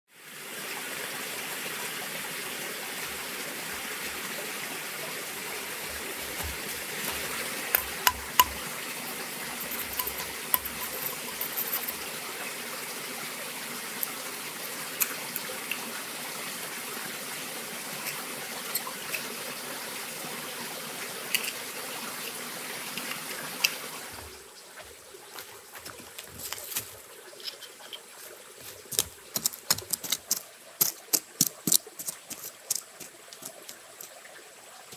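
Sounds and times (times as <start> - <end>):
forest stream running: 0.1 - 34.9
knife tapping bamboo: 6.0 - 8.6.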